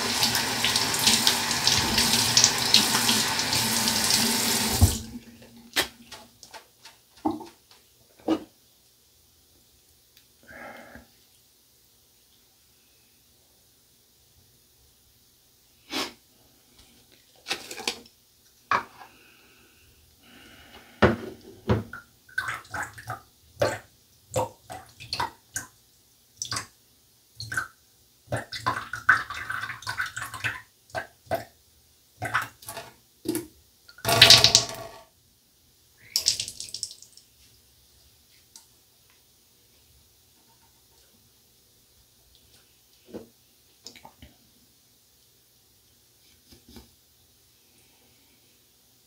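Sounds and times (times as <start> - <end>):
water splashing in a sink: 0.0 - 6.6, 21.9 - 25.8, 27.4 - 31.5, 32.2 - 35.0, 36.0 - 37.3.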